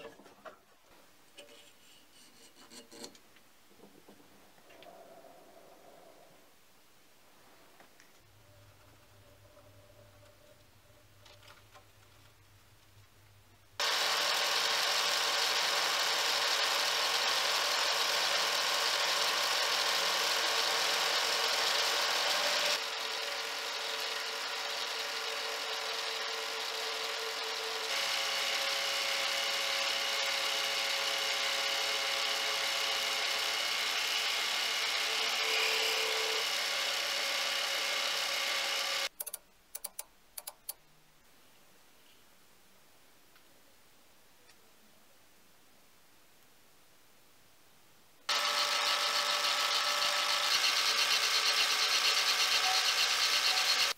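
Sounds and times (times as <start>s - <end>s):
lathe cutting metal: 13.8s - 39.1s, 48.3s - 53.9s
short clicks: 39.1s - 40.8s.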